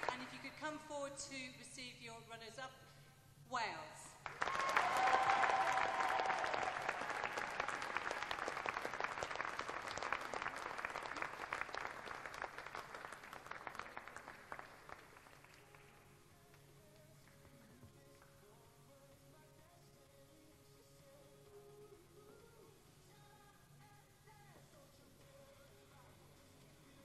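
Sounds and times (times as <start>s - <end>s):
audience applause: 4.2s - 16.1s
brief cheer: 4.3s - 7.7s.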